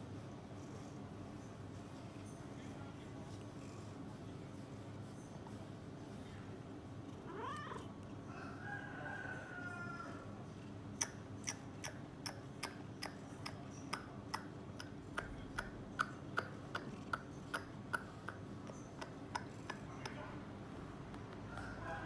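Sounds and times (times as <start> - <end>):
sharp ticks: 11.0 - 20.2.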